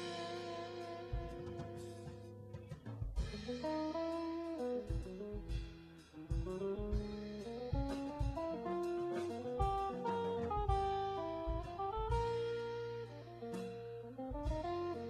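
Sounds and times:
drum kit: 0.0s - 15.0s
electric bass: 0.0s - 15.0s
electric guitar melody: 0.0s - 15.0s.

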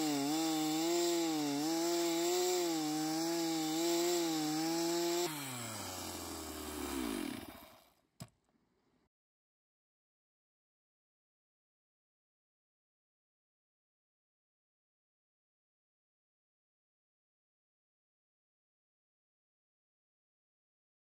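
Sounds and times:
chainsaw running: 0.0s - 8.0s.

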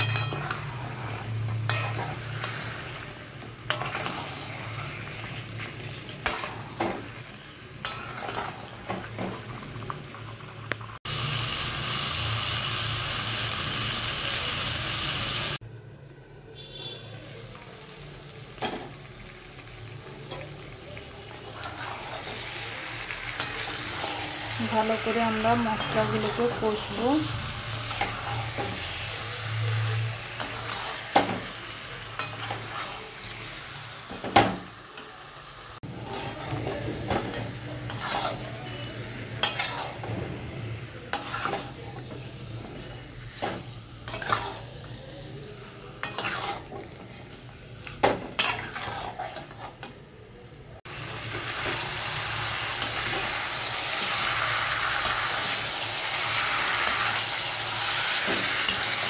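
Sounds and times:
spatula scraping metal pan: 0.0s - 3.0s, 3.7s - 6.9s, 7.8s - 8.9s, 30.4s - 31.4s, 35.9s - 40.3s, 41.1s - 44.7s, 46.0s - 47.3s, 48.3s - 49.9s
frying sizzle: 0.0s - 59.0s.

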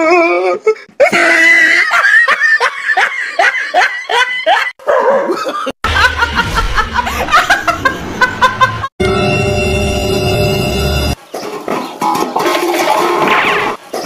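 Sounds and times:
woman laughing loudly: 1.0s - 8.9s.

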